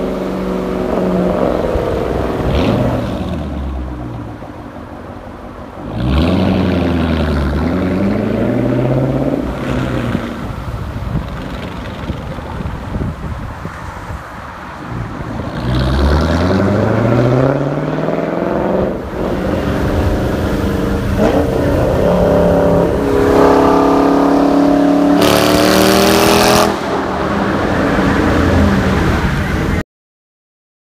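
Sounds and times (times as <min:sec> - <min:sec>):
car engine revving through gears: 0:00.0 - 0:03.8, 0:05.8 - 0:10.6, 0:14.9 - 0:29.4.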